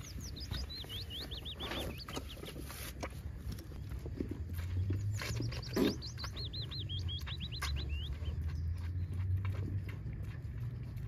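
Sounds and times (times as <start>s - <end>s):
small songbird singing: 0.0s - 2.7s, 4.8s - 9.4s
low steady rumble: 0.0s - 11.0s.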